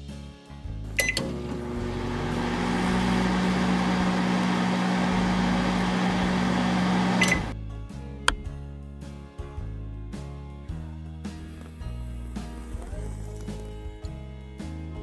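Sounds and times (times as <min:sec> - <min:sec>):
electric oven humming: 0:01.0 - 0:07.6.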